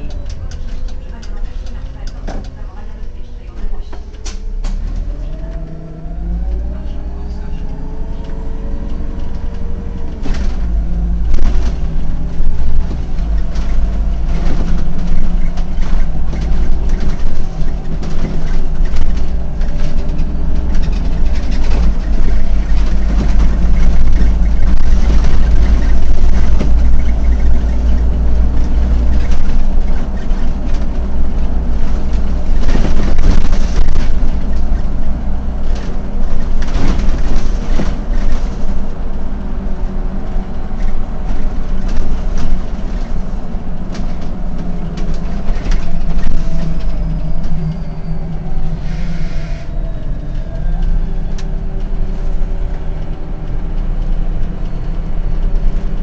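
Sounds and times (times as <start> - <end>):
bus body rattles and knocks: 0.0 - 6.7, 7.5 - 48.8, 49.8 - 56.0
bus engine drone: 0.0 - 56.0.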